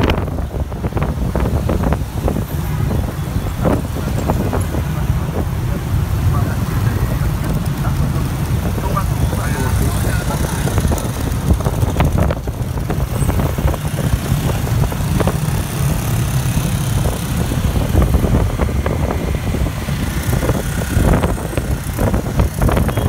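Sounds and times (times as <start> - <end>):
road noise: 0.0 - 23.0
scooter engines rumbling: 0.0 - 23.0.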